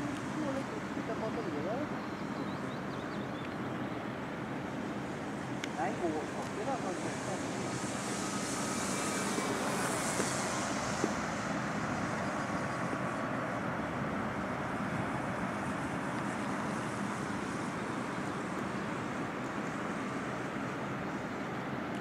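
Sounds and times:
wind noise: 5.7s - 17.8s
model plane motor drone: 5.8s - 13.0s.

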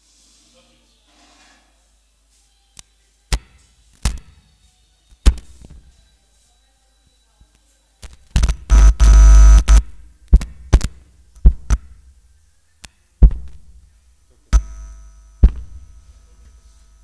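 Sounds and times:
heavy thumps: 8.4s - 12.2s, 13.2s - 13.8s, 15.4s - 15.9s
harsh distorted burst: 8.6s - 9.8s.

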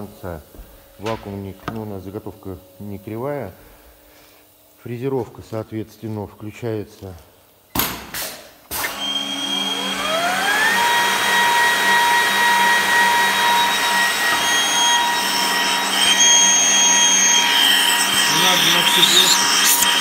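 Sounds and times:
motor spinning with high whine: 8.9s - 20.0s
higher whine: 13.6s - 20.0s.

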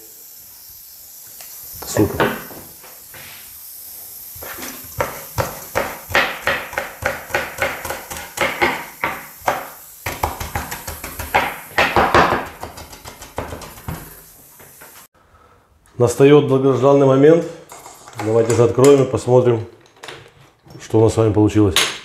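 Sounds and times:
knife chopping on wooden board: 5.0s - 14.1s.

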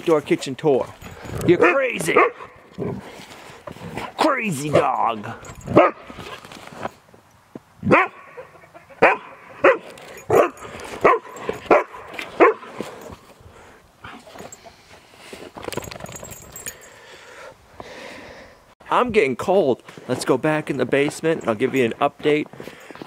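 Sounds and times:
dog barking: 1.6s - 2.6s, 5.7s - 6.1s, 7.8s - 12.8s.

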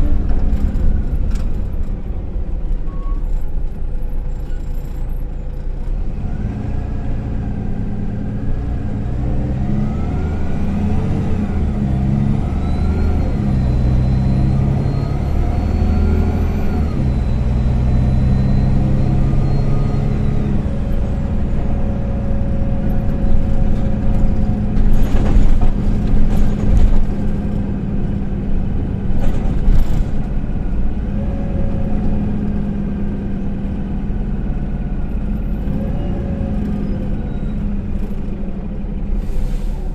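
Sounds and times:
bus engine and drivetrain: 0.0s - 39.9s
high drivetrain whine: 0.0s - 39.9s
bus body knocks and rattles: 23.2s - 30.6s.

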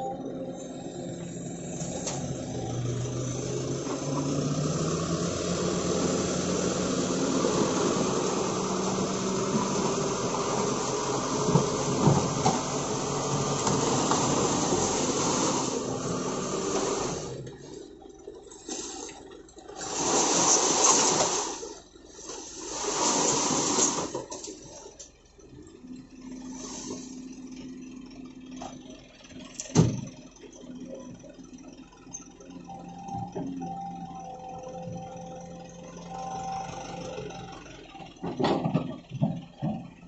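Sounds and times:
excavator engine hum: 0.0s - 40.0s
excavator loud rushing noise: 0.8s - 17.8s, 19.8s - 24.3s.

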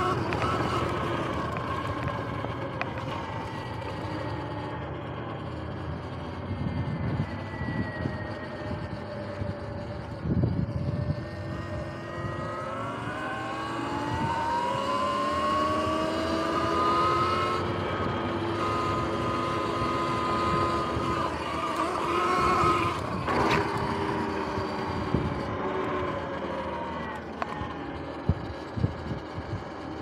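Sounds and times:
electric motor and chain whining: 0.0s - 30.0s
tyre and wind noise: 6.1s - 12.6s, 13.8s - 30.0s.

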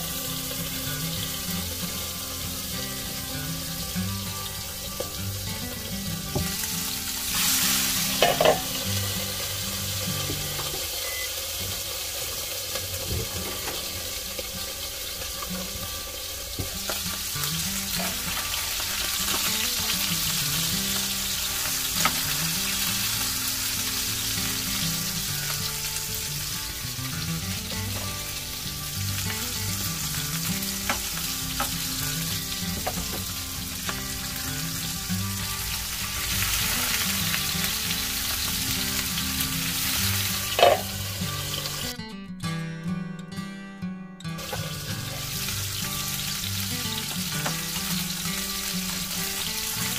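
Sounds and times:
fish sizzling in a pan: 0.0s - 41.9s, 44.4s - 49.9s
utensil knocking against pan: 8.2s - 8.8s, 40.6s - 41.0s.

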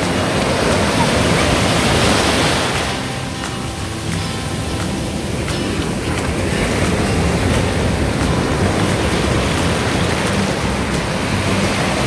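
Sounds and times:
ocean waves breaking: 0.0s - 12.0s
water washing up sand: 0.0s - 12.0s.

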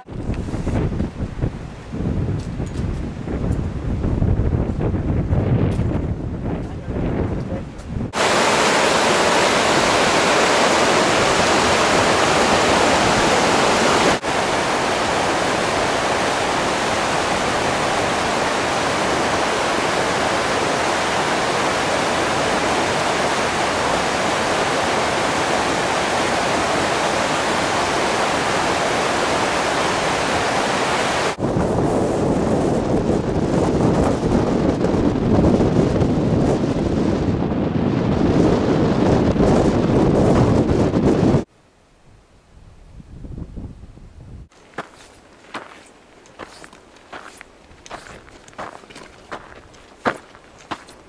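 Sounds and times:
wind buffeting microphone: 0.0s - 28.8s, 29.8s - 41.5s, 42.6s - 51.0s
stream rushing over boulders: 8.2s - 31.4s, 44.5s - 51.0s.

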